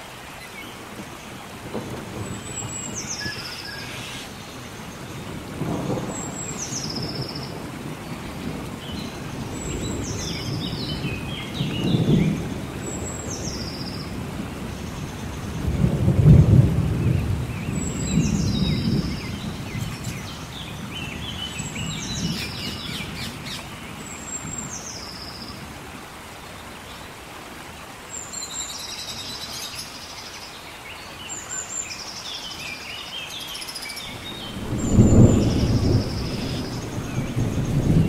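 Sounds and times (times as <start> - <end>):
steady rain: 0.0 - 38.0
rolling thunder: 5.1 - 23.6, 34.1 - 38.0.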